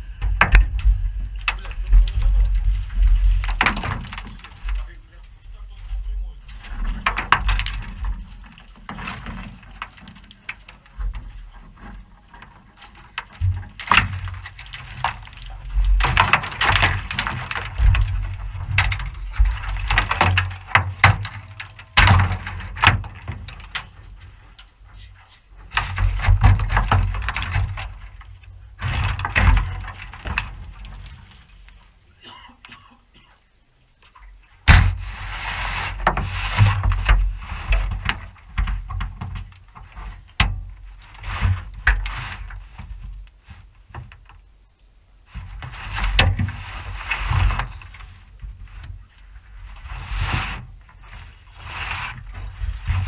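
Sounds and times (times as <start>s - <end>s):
twigs snapping and rustling: 0.5s - 32.7s.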